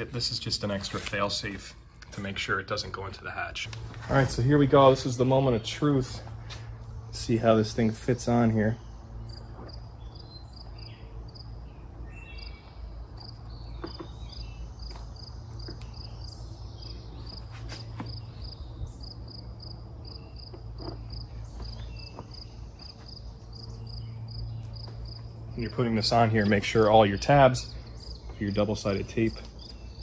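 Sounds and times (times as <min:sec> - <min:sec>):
constant low hum: 0:00.0 - 0:30.0
insect chirping: 0:08.8 - 0:25.6.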